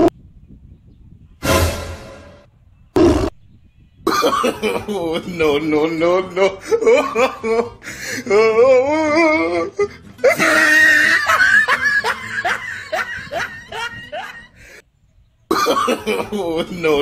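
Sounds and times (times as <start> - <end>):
comic laughter sound effect: 4.1 - 14.6, 15.5 - 17.0.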